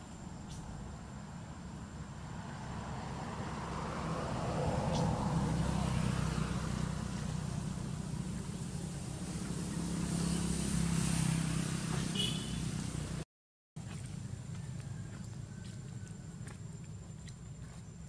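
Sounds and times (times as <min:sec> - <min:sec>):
vehicle engine humming: 0:00.0 - 0:13.2.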